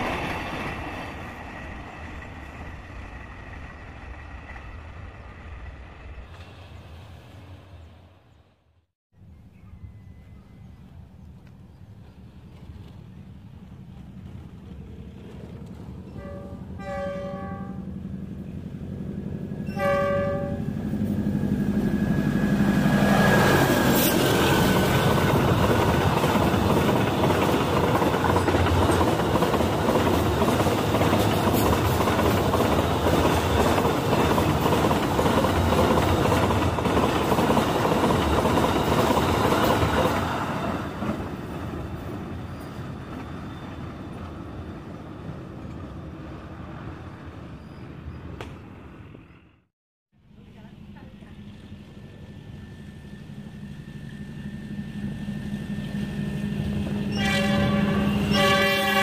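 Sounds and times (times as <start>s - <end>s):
freight train wagons on rails: 0.0s - 8.6s, 9.2s - 49.6s, 50.2s - 59.0s
diesel locomotive horn: 16.1s - 18.1s, 19.5s - 25.2s, 55.2s - 59.0s.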